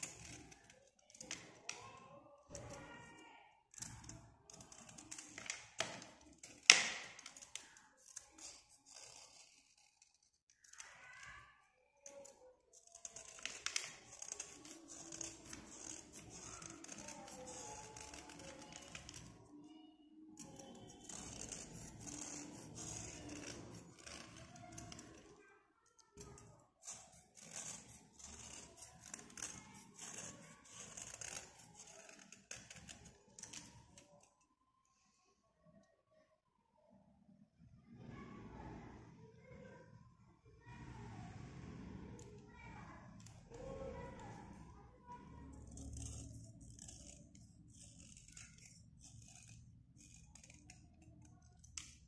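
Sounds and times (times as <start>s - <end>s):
knife blade scraping pencil: 0.0s - 1.9s, 3.7s - 10.9s, 12.0s - 19.4s, 20.4s - 25.3s, 26.2s - 34.1s, 45.2s - 52.0s
metal blade scraping slate: 20.4s - 25.2s, 26.2s - 33.7s.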